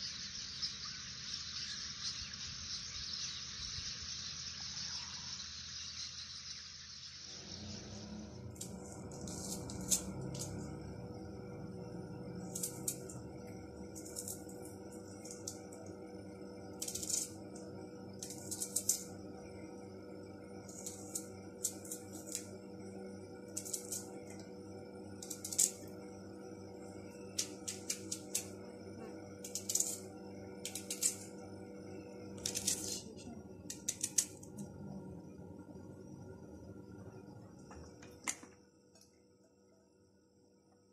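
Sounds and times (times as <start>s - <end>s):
steady low hum: 0.0s - 40.9s
onion layers snapping and crackling: 12.4s - 13.2s, 16.8s - 17.6s, 18.2s - 19.2s, 20.7s - 22.5s, 23.5s - 24.1s, 25.2s - 25.8s, 27.4s - 28.5s, 29.4s - 31.3s, 32.4s - 33.1s, 33.7s - 34.6s
eggshell crackling: 13.8s - 15.9s, 16.7s - 19.2s, 20.6s - 22.6s, 23.5s - 24.5s, 29.4s - 31.3s.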